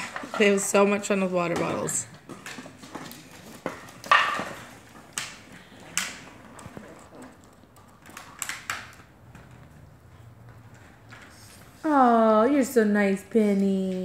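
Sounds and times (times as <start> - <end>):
plastic bottle knocking and crinkling: 1.5 - 5.4.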